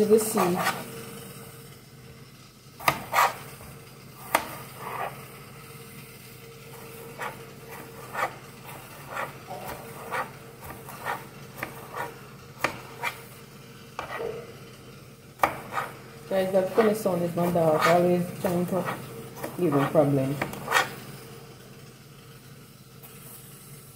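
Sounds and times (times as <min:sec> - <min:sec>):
knife chopping on plastic board: 0:02.8 - 0:03.5, 0:04.2 - 0:05.2, 0:07.0 - 0:13.2, 0:14.0 - 0:14.4, 0:15.4 - 0:16.0, 0:16.7 - 0:18.0, 0:18.7 - 0:21.0.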